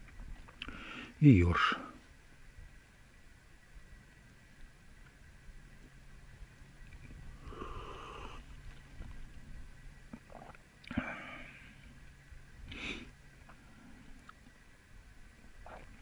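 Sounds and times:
low steady rumble: 0.0s - 16.0s
faint breathing: 0.6s - 1.2s, 7.3s - 8.8s, 10.9s - 12.0s, 12.6s - 14.3s.

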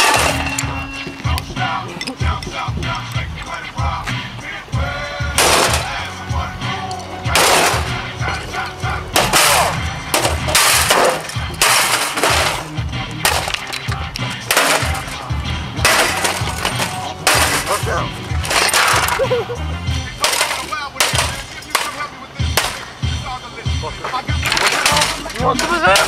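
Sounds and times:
objects smashing: 0.0s - 0.8s, 5.4s - 6.0s, 7.3s - 8.2s, 9.1s - 19.3s, 20.2s - 22.9s, 24.4s - 26.0s
music with steady beat: 0.0s - 26.0s.

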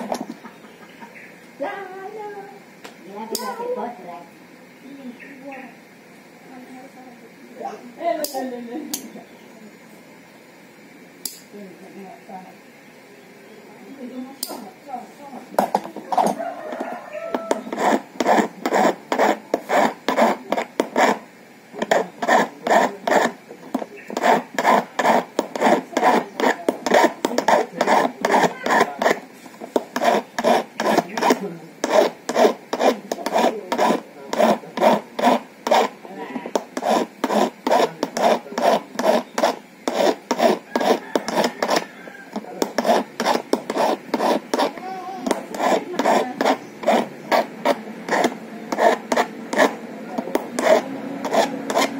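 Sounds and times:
file rasping on metal key: 15.7s - 29.2s, 29.8s - 51.9s.

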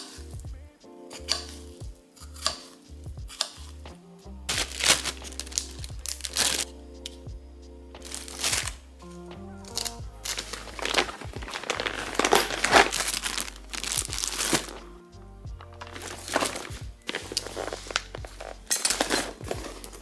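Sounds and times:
background music with bass: 0.0s - 20.0s
plastic and fabric bags rustling: 4.5s - 6.7s, 8.0s - 8.8s, 9.7s - 14.9s, 15.6s - 20.0s.

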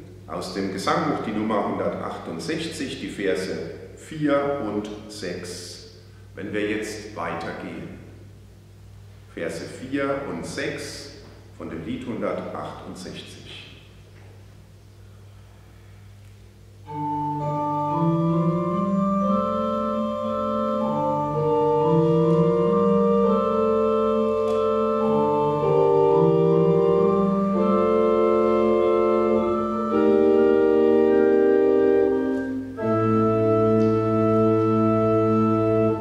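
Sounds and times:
church organ playing: 16.8s - 36.0s.

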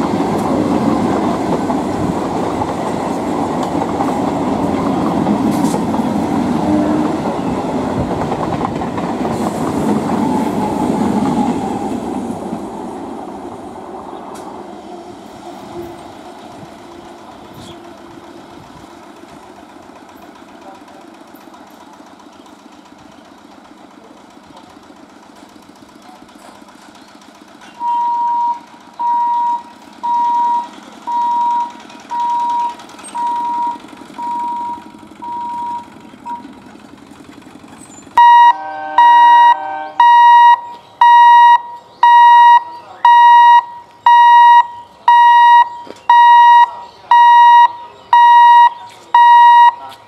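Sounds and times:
electric train rumbling: 0.0s - 50.0s
level crossing beeper: 27.8s - 36.5s, 38.2s - 50.0s
harsh beeper: 38.2s - 49.9s.

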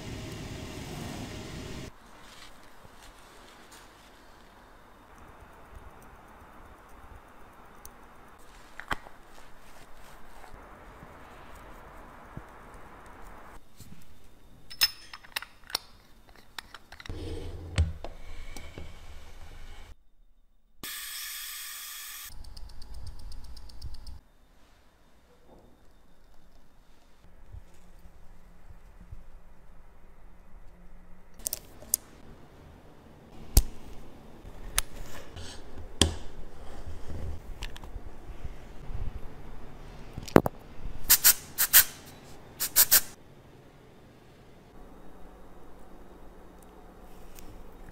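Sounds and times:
clicks of tools and watch parts: 14.7s - 17.1s.

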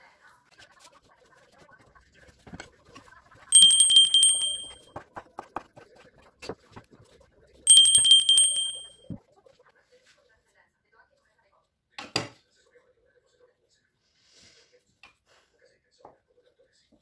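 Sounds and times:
bicycle bell ringing: 3.5s - 4.9s, 7.7s - 9.1s.

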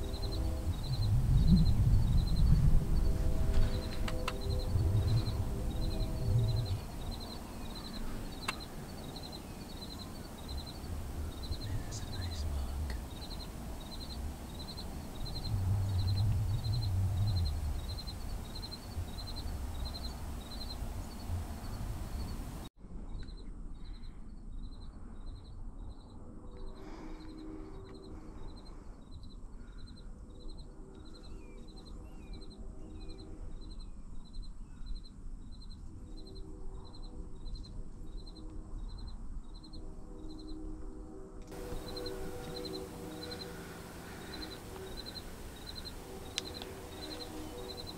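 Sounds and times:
faint bird chirps: 0.0s - 22.4s, 23.0s - 40.7s, 41.6s - 47.9s
low rumble: 0.0s - 26.8s
insect chirping: 0.0s - 47.9s.

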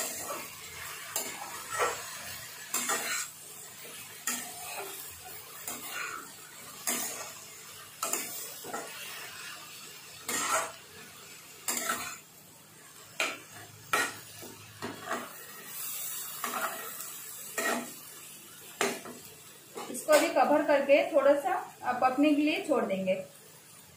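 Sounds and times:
spatula scraping pan: 0.0s - 9.6s, 10.2s - 10.8s, 11.6s - 12.2s, 13.2s - 18.0s
light sizzle: 0.0s - 23.9s.

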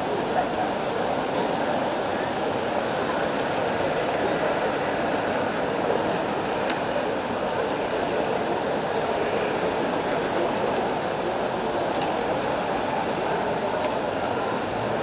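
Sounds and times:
city noise: 0.0s - 15.0s
distant voices: 0.0s - 15.0s.

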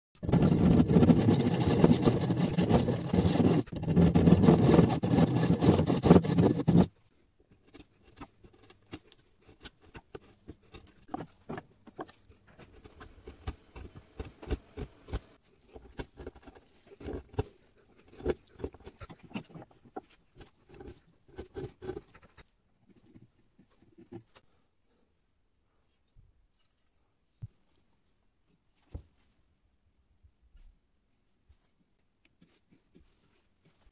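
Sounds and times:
hand saw rasping through wood: 0.2s - 6.9s
chisel scraping wood: 0.2s - 23.2s.

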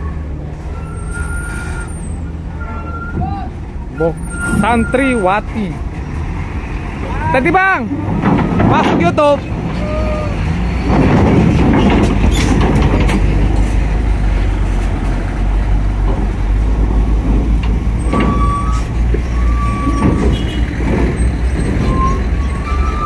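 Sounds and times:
truck engine rumble: 0.0s - 23.0s
clunks and rattles: 0.4s - 23.0s
short high squeals: 0.6s - 5.5s, 18.0s - 20.6s, 21.2s - 23.0s.

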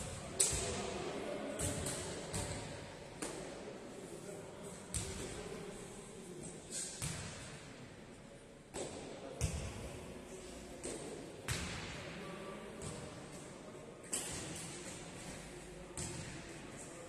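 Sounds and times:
ball thudding on indoor court: 1.6s - 3.5s, 7.0s - 7.4s, 8.7s - 9.8s, 10.8s - 12.0s.

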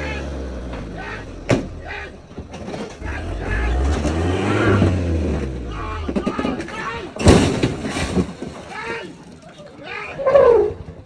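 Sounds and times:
people shouting and screaming: 0.0s - 2.3s, 2.9s - 7.3s, 8.6s - 10.9s
vehicle engine running: 0.0s - 7.2s.

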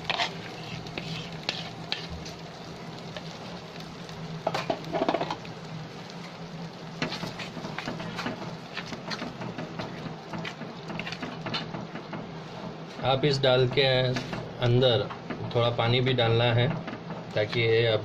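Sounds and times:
spoon scraping paste in pan: 0.0s - 2.2s, 10.4s - 11.7s.

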